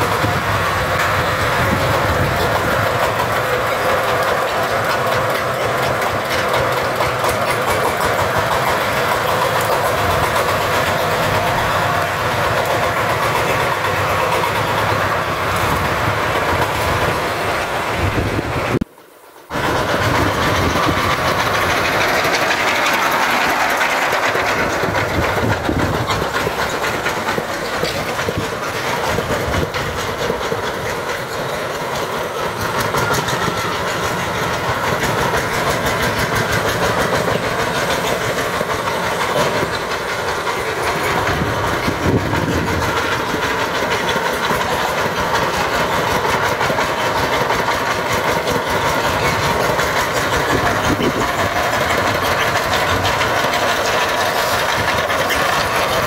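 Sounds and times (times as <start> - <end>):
diesel engine knocking: 0.0 - 17.4, 19.5 - 56.0.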